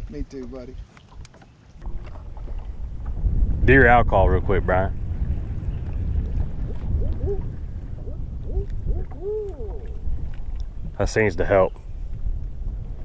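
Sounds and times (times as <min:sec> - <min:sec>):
wind rumble on microphone: 0:00.0 - 0:13.0
owl hooting: 0:08.5 - 0:10.0.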